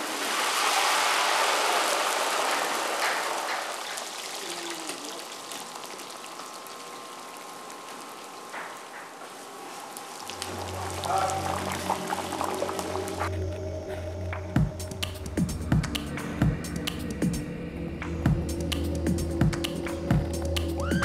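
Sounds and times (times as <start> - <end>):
hot oil sizzling and bubbling: 0.0 - 13.3.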